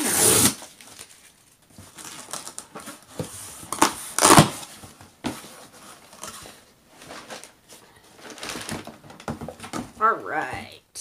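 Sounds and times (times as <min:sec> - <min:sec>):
packing tape tearing: 0:00.0 - 0:01.3, 0:03.7 - 0:04.7
cardboard rustling: 0:00.2 - 0:10.0.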